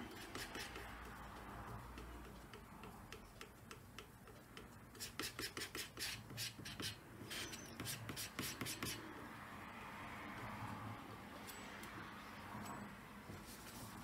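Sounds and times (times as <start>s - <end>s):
scraper scraping paint on textured panel: 0.0s - 9.2s.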